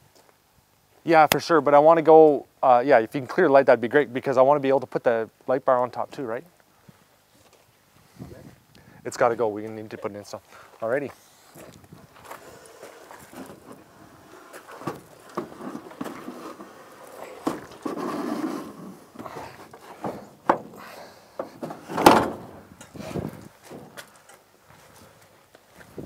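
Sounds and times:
metal scraping truck bed: 12.4s - 24.1s
metal frame clanking and thudding: 13.3s - 24.1s
loud metal bang: 21.7s - 22.7s.

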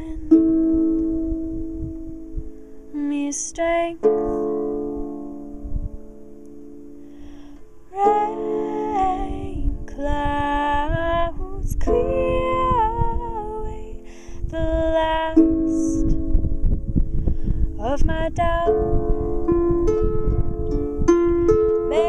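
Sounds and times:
woman singing wordlessly: 0.0s - 0.4s, 2.9s - 4.4s, 7.9s - 16.2s, 17.8s - 19.0s
harp plucked: 0.0s - 22.0s
wind rumbling on microphone: 0.0s - 22.0s.

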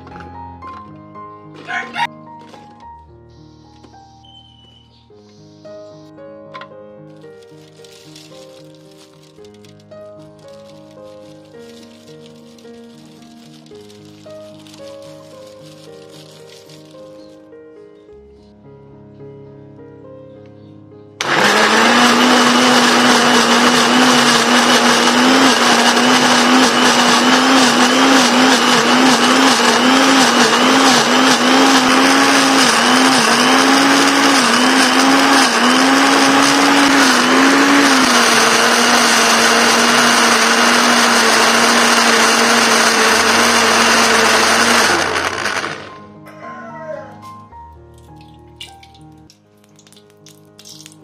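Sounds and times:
electric blender grinding: 21.2s - 46.0s.

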